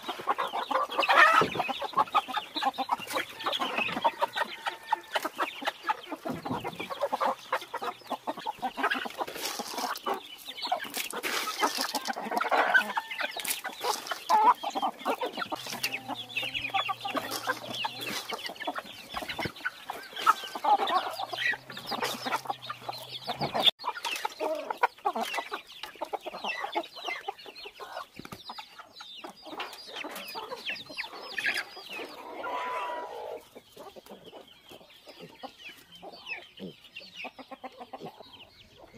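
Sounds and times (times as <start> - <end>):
chickens clucking: 0.0 - 38.9.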